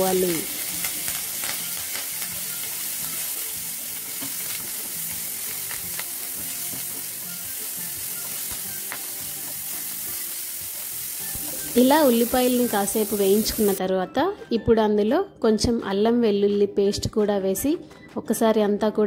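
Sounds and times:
vegetables sizzling in hot oil: 0.0 - 13.8.

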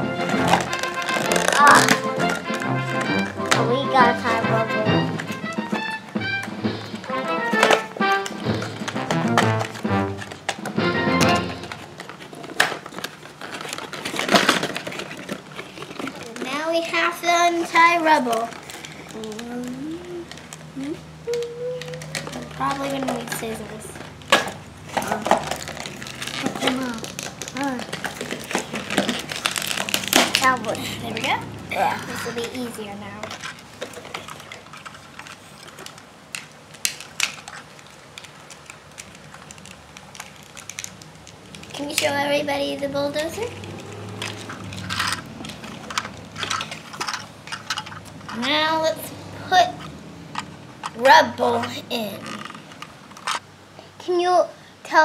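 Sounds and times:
cardboard crinkling and scraping: 0.0 - 6.0, 11.4 - 20.6, 21.8 - 48.8
plastic packaging crackling: 0.0 - 6.2, 6.8 - 49.0, 49.6 - 53.6
child's voice holding a note: 1.5 - 2.0, 3.6 - 5.0, 19.1 - 24.0, 41.7 - 43.6
sharp plastic snaps: 33.3 - 42.2.

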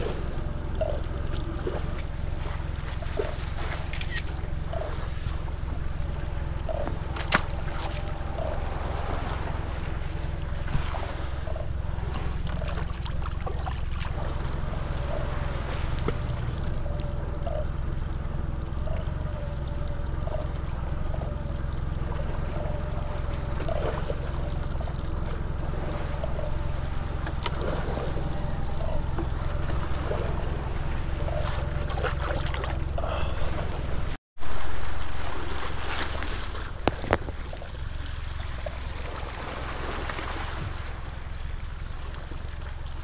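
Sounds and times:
wind rumble on microphone: 0.0 - 43.0
water slapping against boat hull: 6.7 - 17.1, 35.1 - 41.3.

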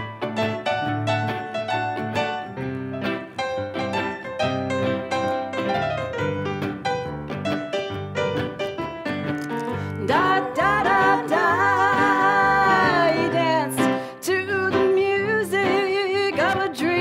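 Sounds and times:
keyboard playing: 0.0 - 15.0
electric guitar: 0.0 - 17.0
woman singing with vibrato: 9.9 - 17.0.

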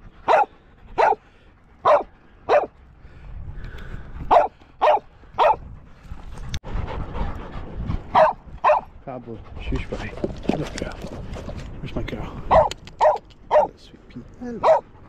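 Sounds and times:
dog barking: 0.3 - 1.2, 1.8 - 2.7, 4.3 - 5.6, 8.1 - 8.9, 12.5 - 13.8, 14.6 - 14.9.

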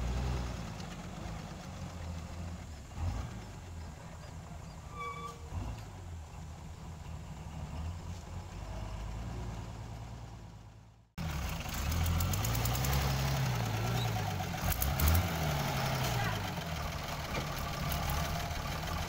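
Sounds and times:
engine revving: 0.0 - 4.0, 11.2 - 19.0
truck engine humming: 0.0 - 19.0.

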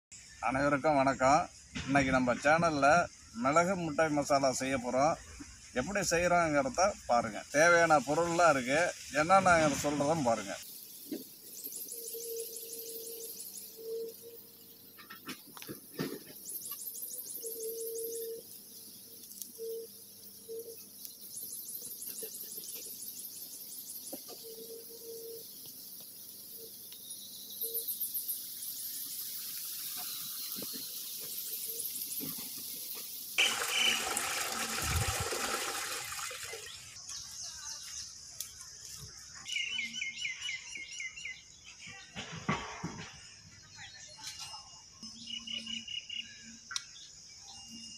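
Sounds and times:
insects trilling: 0.1 - 47.9.

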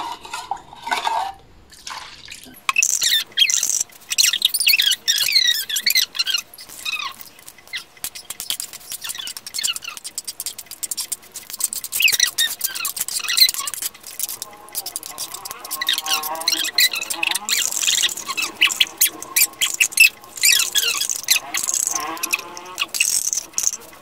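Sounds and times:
small birds chirping: 2.6 - 24.0.

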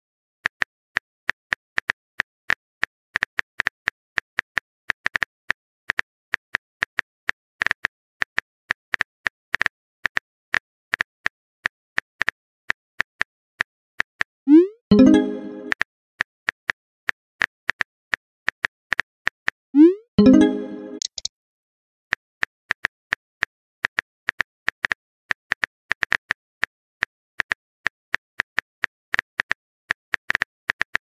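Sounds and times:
phone keyboard typing clicks: 20.2 - 21.3.

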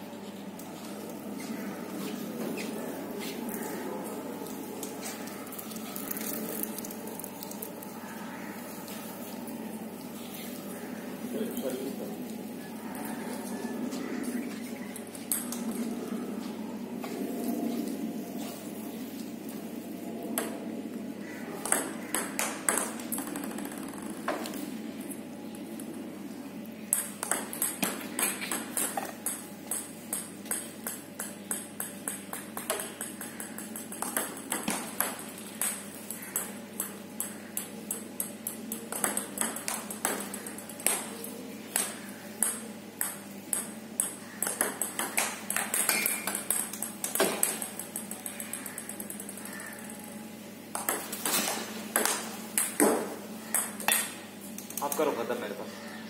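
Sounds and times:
ball bouncing on table: 21.6 - 24.6, 26.9 - 41.1, 41.8 - 49.9, 50.7 - 54.2
ball clicking off rackets: 21.6 - 24.7, 26.9 - 50.0, 50.7 - 55.2.

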